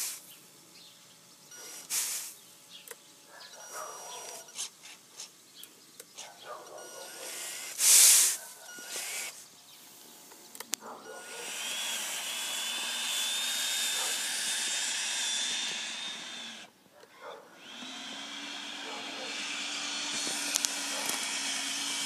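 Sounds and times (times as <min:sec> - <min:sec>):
hydraulic pump whining: 0:01.5 - 0:02.3, 0:06.0 - 0:09.4, 0:10.5 - 0:16.8, 0:17.5 - 0:22.0.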